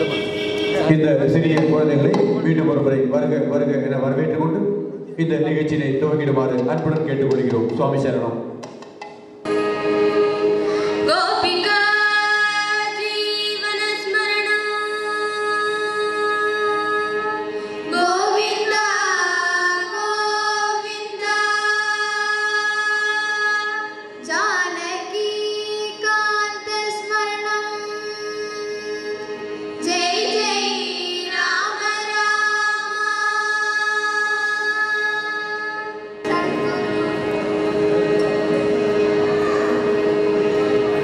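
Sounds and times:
girls singing devotional song: 11.0 - 38.0.

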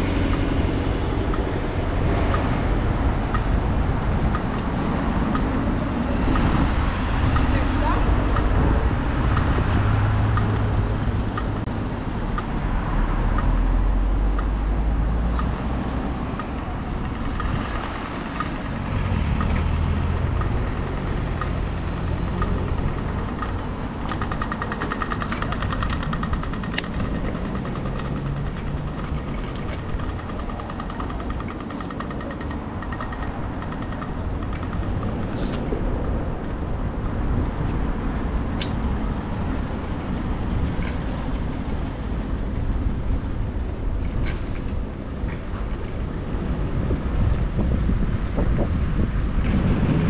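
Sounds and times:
road noise rushing: 0.0 - 50.0
traffic rumbling: 0.0 - 50.0
bicycle ticking: 15.2 - 35.4.

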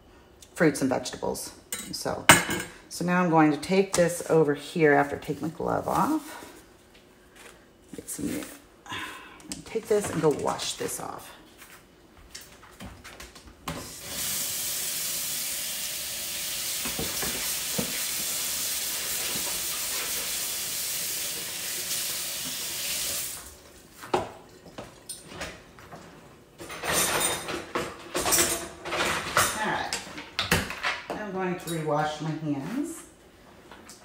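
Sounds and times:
tap running into a sink: 16.6 - 20.4.

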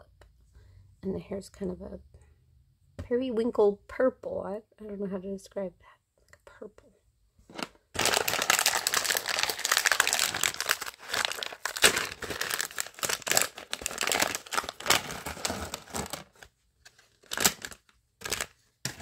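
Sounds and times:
plastic bags crinkling: 7.6 - 19.0.

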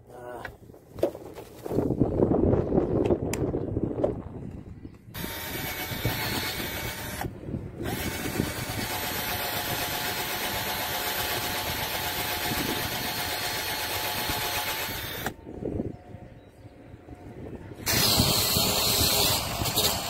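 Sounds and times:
cordless drill boring wood: 5.2 - 15.4, 17.8 - 20.0.

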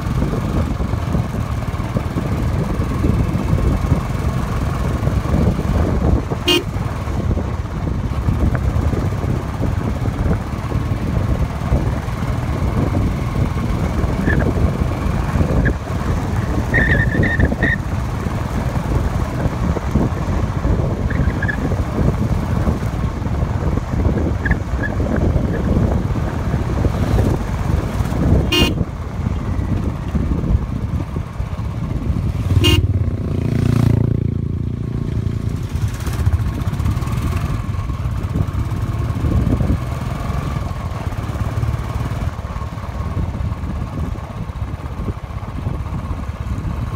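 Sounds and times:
motorcycle engine: 0.0 - 46.9
wind buffeting microphone: 0.0 - 46.9
horn toot: 6.4 - 6.7, 28.5 - 28.8, 32.5 - 33.0.

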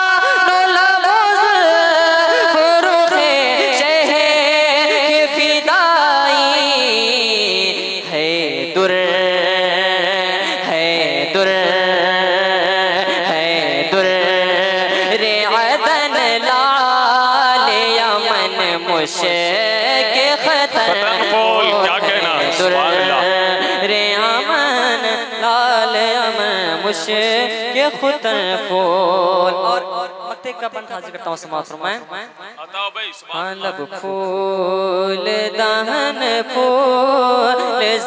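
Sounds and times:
young man singing into microphone: 0.0 - 32.2, 33.0 - 38.0.

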